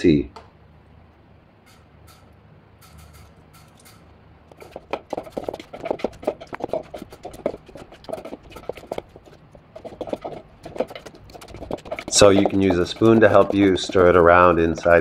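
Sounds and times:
wooden pestle knocking on mortar: 0:04.6 - 0:15.0.

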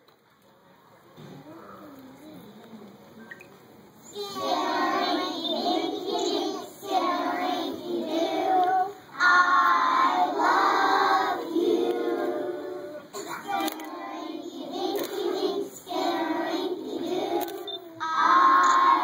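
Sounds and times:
children singing: 0:04.1 - 0:19.0.

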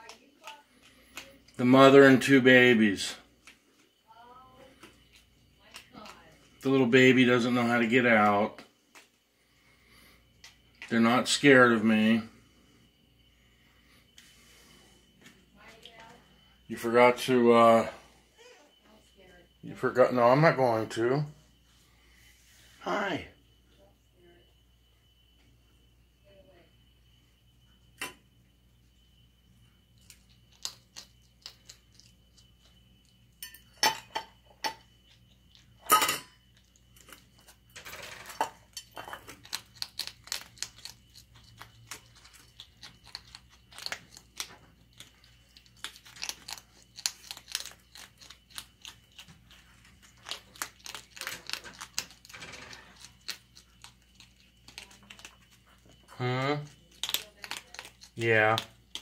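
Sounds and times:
animals crunching food: 0:00.0 - 0:04.0, 0:04.6 - 0:11.6, 0:29.8 - 0:33.3, 0:36.4 - 0:59.0.

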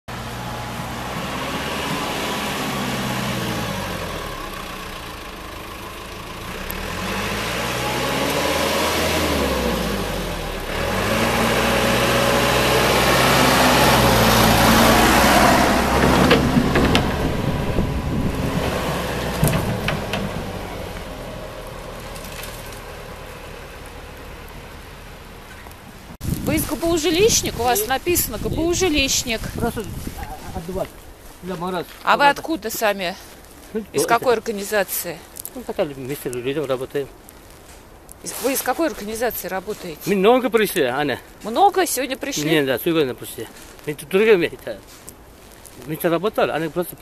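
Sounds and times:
backhoe diesel engine passing: 0:00.1 - 0:37.1
sharp knocks: 0:15.9 - 0:17.7, 0:18.5 - 0:20.6.

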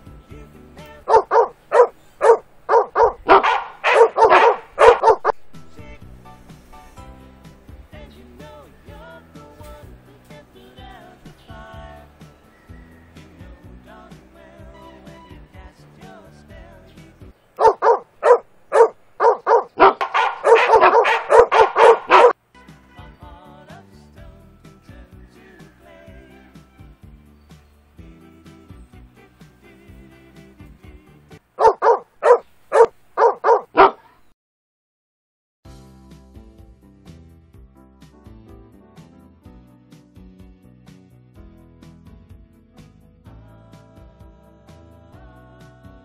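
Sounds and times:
recorded dog barking through speaker: 0:01.0 - 0:05.4, 0:17.6 - 0:22.4, 0:31.6 - 0:34.2.

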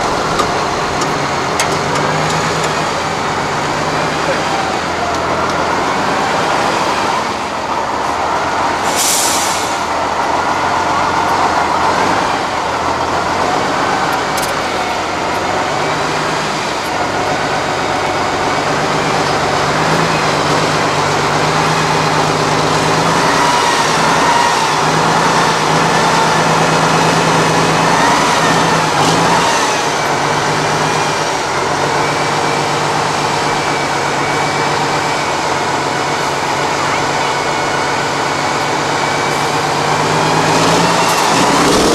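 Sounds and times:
diesel truck engine under load: 0:00.0 - 0:41.9
short hiss: 0:08.9 - 0:09.9.

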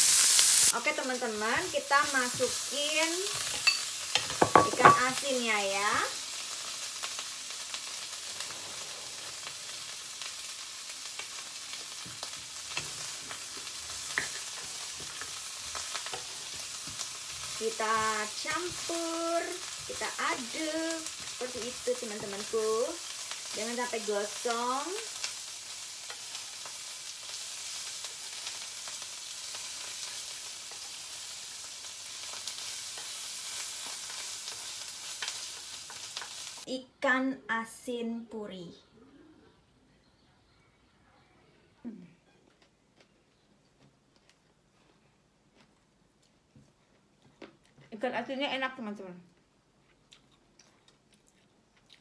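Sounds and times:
fish sizzling in a pan: 0:00.0 - 0:36.7.

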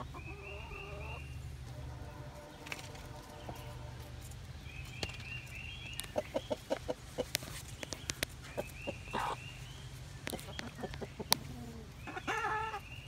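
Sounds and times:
hens clucking: 0:00.0 - 0:13.0
steady low hum: 0:00.0 - 0:13.0
sharp pecking clicks: 0:04.9 - 0:08.8, 0:10.2 - 0:11.5.

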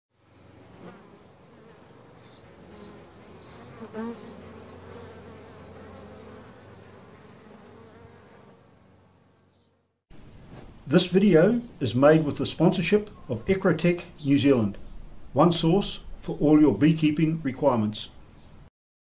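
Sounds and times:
bee buzzing past close: 0:00.2 - 0:09.9
honey bees buzzing: 0:00.2 - 0:10.0.

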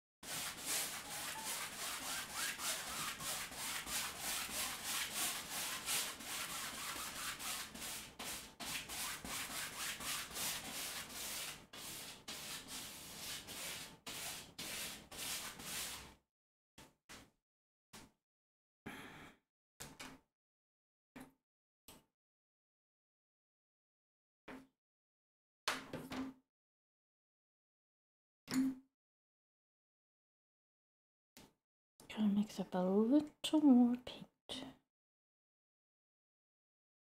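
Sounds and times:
paintbrush scrubbing on canvas: 0:00.2 - 0:16.1.

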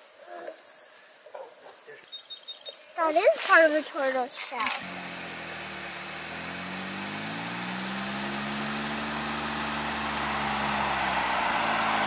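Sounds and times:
utility vehicle engine approaching: 0:04.8 - 0:12.0.

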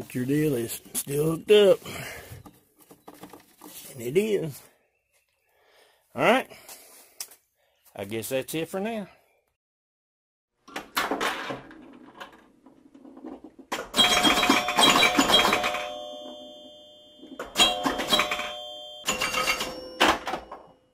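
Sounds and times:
bell ringing: 0:14.0 - 0:20.8.

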